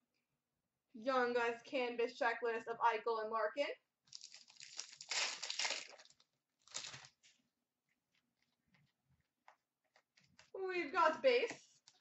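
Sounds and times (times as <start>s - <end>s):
card pack wrapper crinkling: 4.1s - 7.2s.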